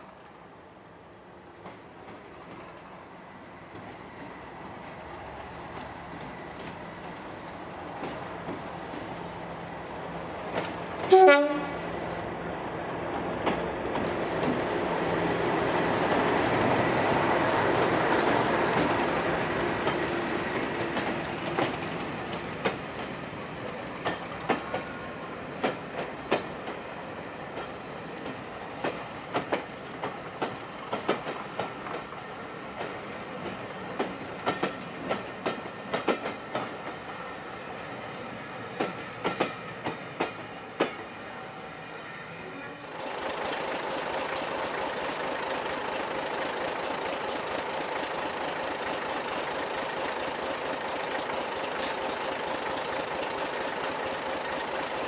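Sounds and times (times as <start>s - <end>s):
diesel locomotive passing: 0.0s - 55.0s
train horn blast: 11.1s - 11.8s
wheels clacking over rail joints: 13.2s - 23.2s, 24.0s - 26.9s, 27.5s - 32.2s, 32.8s - 37.1s, 42.9s - 55.0s.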